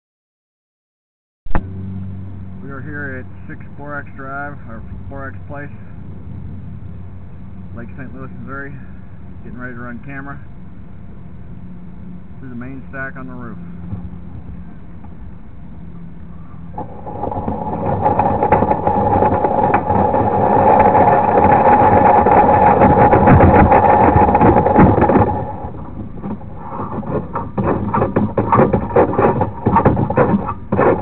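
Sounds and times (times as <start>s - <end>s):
steady hum: 1.5s - 31.0s
cable rattling and scraping: 16.3s - 31.0s.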